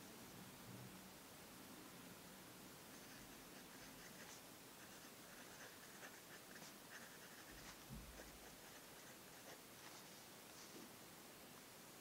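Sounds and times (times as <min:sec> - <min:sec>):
pen nib scratching paper: 0:02.9 - 0:10.1.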